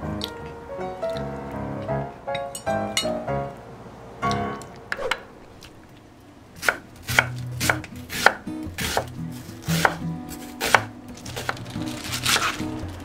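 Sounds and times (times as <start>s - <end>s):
knife chopping on wooden board: 6.6s - 11.6s.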